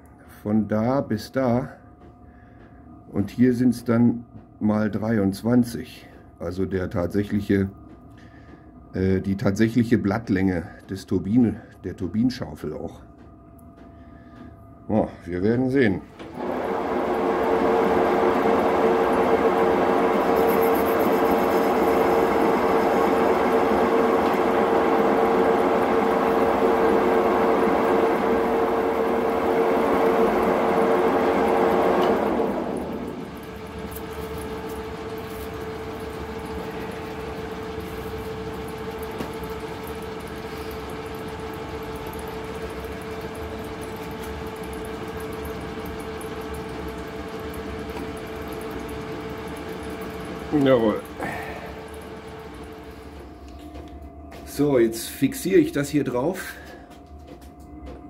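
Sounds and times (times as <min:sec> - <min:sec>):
lathe motor hum: 0:16.1 - 0:56.8
whirring cutting noise: 0:16.2 - 0:53.2.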